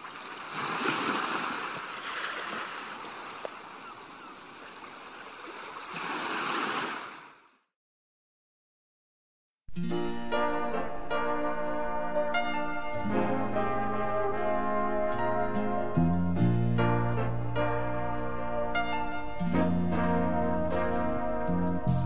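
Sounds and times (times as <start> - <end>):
sea waves breaking on shore: 0.0 - 7.5
music with brass: 10.1 - 22.0.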